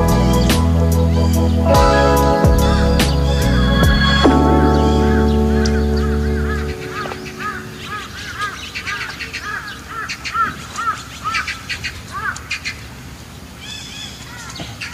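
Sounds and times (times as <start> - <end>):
short arched chirping calls: 2.6 - 9.8.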